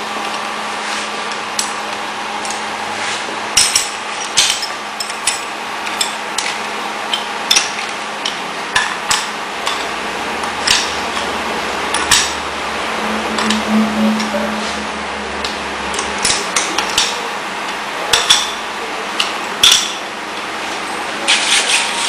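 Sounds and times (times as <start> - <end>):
background hum: 3.5 - 19.0.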